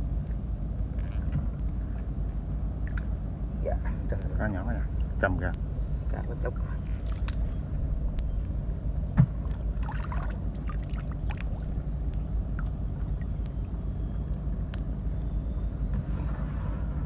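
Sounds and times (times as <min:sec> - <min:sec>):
steady low rumble: 0:00.0 - 0:17.0
water splashes: 0:06.3 - 0:07.4, 0:09.3 - 0:13.8.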